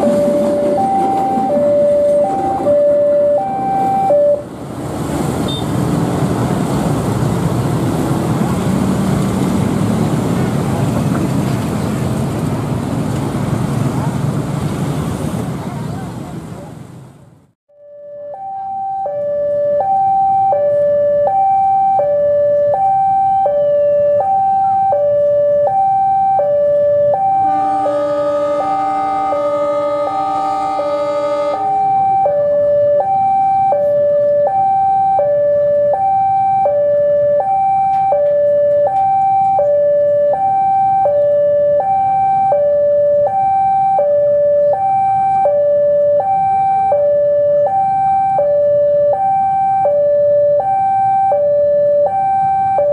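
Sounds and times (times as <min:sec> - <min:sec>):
level crossing alarm: 0:00.0 - 0:04.5, 0:17.7 - 0:52.9
locomotive engine rumbling: 0:00.0 - 0:17.5, 0:18.4 - 0:50.5
locomotive horn blast: 0:27.1 - 0:32.6.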